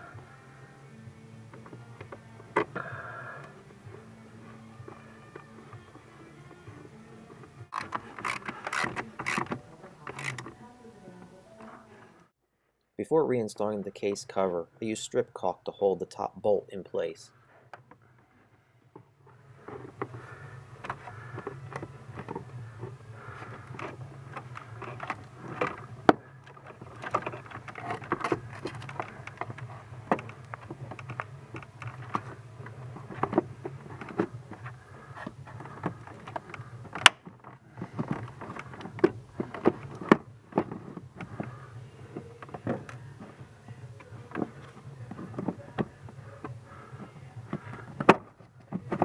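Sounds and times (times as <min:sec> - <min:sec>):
plastic rubbing and rustling: 0:19.4 - 0:49.0
plastic clicks and knocks: 0:20.8 - 0:43.4, 0:47.4 - 0:49.0.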